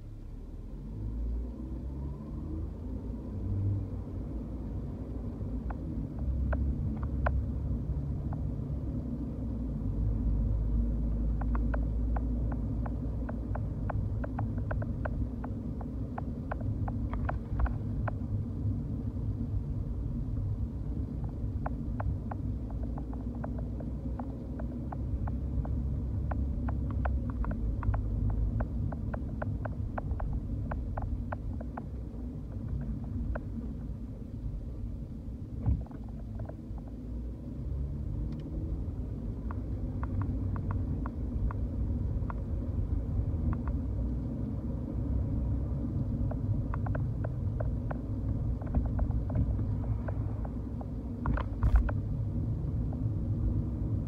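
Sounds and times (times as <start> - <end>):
engine and tyre rumble: 0.0 - 54.0
small irregular ticks and clicks: 1.2 - 54.0.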